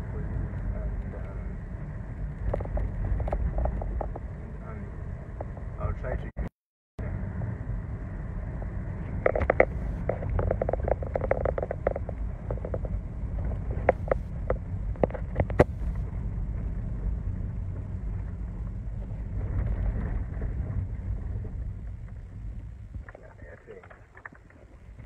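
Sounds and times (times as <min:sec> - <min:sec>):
car engine and road noise: 0:00.0 - 0:25.0
sharp clicks and knocks: 0:09.2 - 0:16.0.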